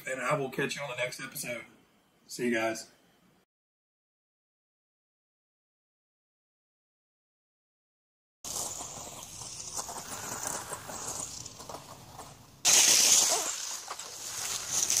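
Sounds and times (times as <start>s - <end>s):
toy car electric motor: 8.5s - 11.8s, 12.7s - 15.0s
tyres rustling through leaves: 8.5s - 15.0s.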